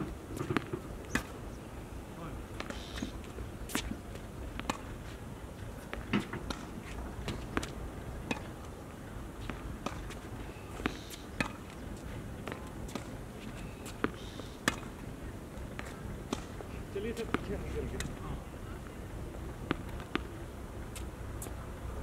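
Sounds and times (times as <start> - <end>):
tennis racket hitting ball: 0.0 - 1.4, 5.9 - 8.6, 10.8 - 11.7, 13.9 - 15.0.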